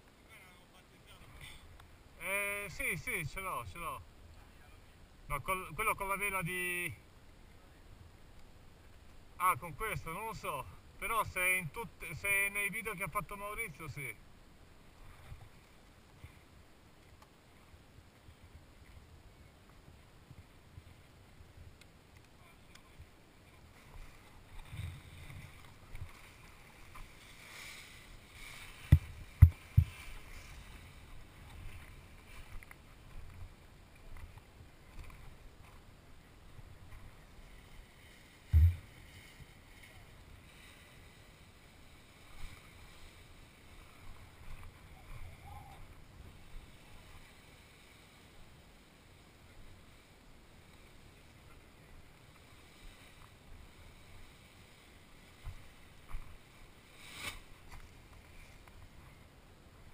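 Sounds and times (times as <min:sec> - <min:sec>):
hard knocks on camera: 0:38.5 - 0:38.9.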